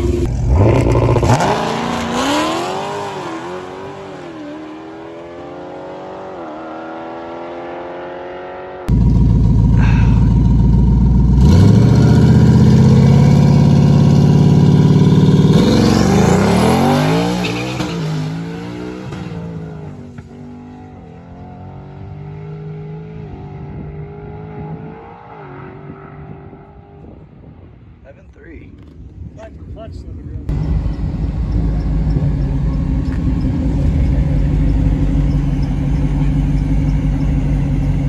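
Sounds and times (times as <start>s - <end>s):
car accelerating with gear changes: 0.0s - 10.3s, 30.5s - 38.0s
car engine revving and launching: 0.0s - 10.3s, 11.3s - 27.2s.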